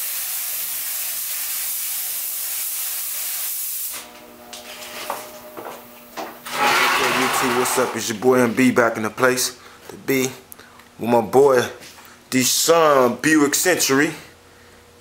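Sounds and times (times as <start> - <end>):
paint spray gun hissing: 0.0 - 4.0
faint steady hum: 3.9 - 6.6, 7.3 - 15.0.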